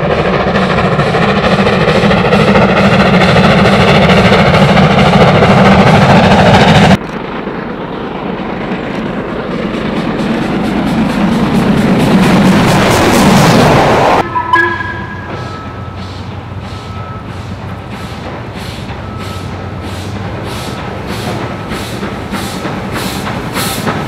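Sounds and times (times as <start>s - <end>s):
steam locomotive exhaust beating: 0.0s - 24.0s
steam train approaching: 0.0s - 24.0s.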